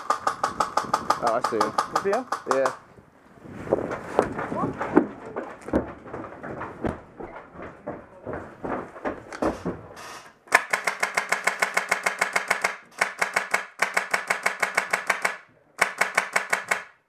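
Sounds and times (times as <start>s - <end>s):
airsoft rifle automatic bursts: 10.5s - 17.0s.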